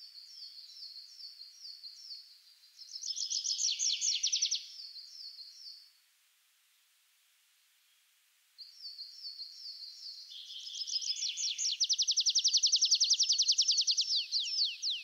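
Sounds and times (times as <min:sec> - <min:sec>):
songbird singing: 0:00.0 - 0:05.9, 0:08.6 - 0:15.0.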